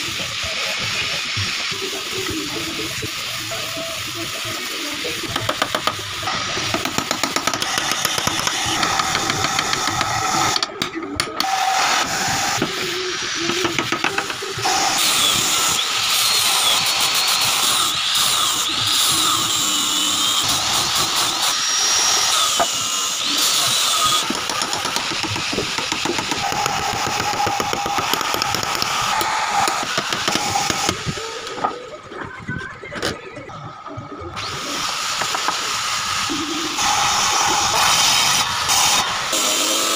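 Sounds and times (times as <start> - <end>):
angle grinder sanding wood: 11.4 - 31.7, 34.4 - 39.9.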